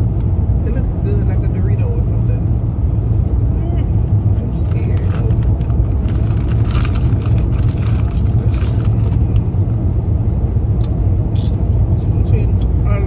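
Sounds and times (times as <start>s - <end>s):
car cabin road and engine rumble: 0.0s - 13.0s
chip bag rustling: 5.0s - 9.2s.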